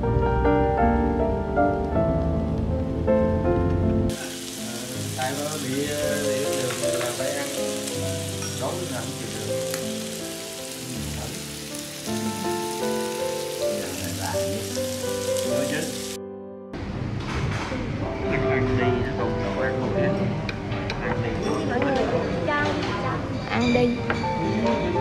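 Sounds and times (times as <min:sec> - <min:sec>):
soft background music: 0:00.0 - 0:25.0
meat sizzling on grill plate: 0:04.1 - 0:16.2.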